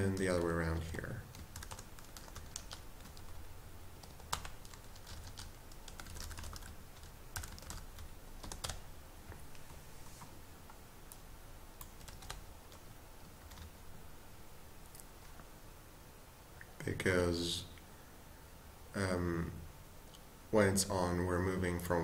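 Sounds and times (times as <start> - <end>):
computer keyboard typing: 0.0 - 8.8, 11.8 - 13.8.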